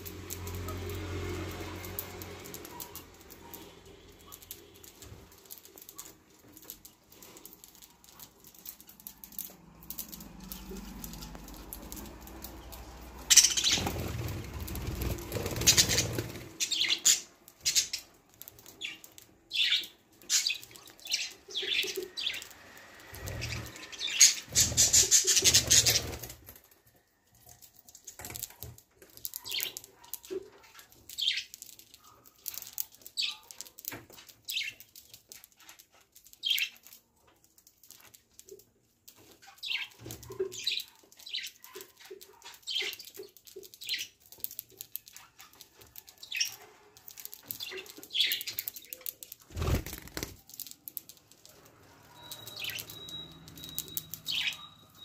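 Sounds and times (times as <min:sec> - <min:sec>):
wings flapping: 0:08.1 - 0:16.9, 0:23.1 - 0:26.6, 0:47.1 - 0:50.7
budgerigars chirping: 0:54.2 - 0:55.0.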